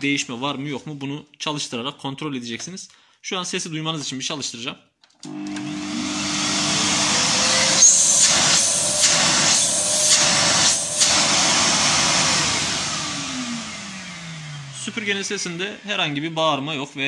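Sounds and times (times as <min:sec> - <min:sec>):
vacuum cleaner running: 0:05.2 - 0:16.6.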